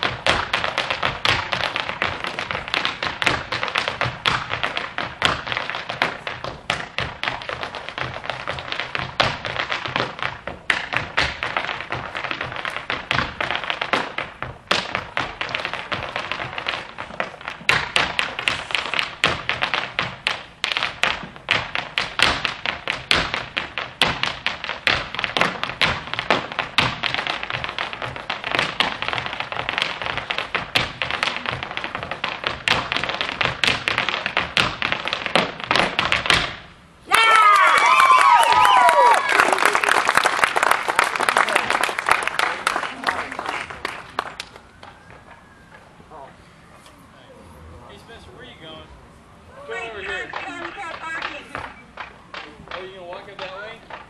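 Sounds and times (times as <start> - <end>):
hard shoes tapping on stage floor: 0.0 - 36.7, 50.1 - 54.0.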